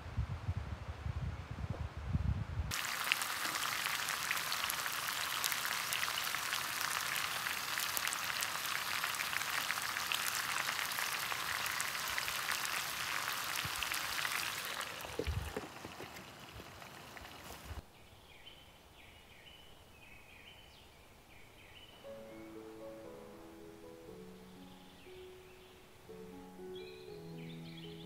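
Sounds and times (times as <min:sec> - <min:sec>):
wind rumble on microphone: 0:00.0 - 0:02.7, 0:15.2 - 0:15.6
meat sizzling in a frying pan: 0:02.7 - 0:17.8.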